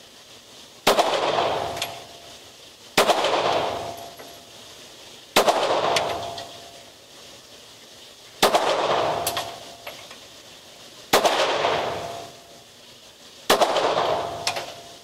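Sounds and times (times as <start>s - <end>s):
pistol shots echoing: 0.9s - 2.0s, 3.0s - 4.1s, 5.4s - 6.4s, 8.4s - 9.6s, 11.1s - 12.3s, 13.5s - 14.8s.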